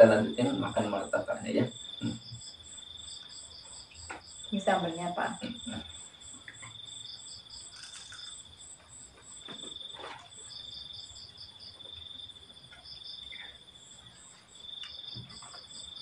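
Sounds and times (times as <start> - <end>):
crickets trilling: 0.0 - 16.0
insects calling in pulses: 0.0 - 16.0
faint knocks and rustles: 8.7 - 10.8, 14.0 - 16.0.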